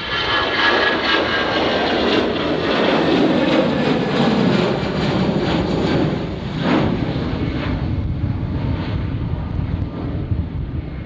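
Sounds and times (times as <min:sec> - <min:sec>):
airliner engines rumbling: 0:00.0 - 0:11.0.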